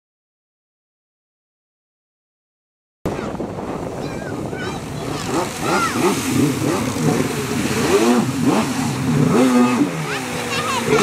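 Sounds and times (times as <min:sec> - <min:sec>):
jet ski engine revving: 0:03.1 - 0:11.0.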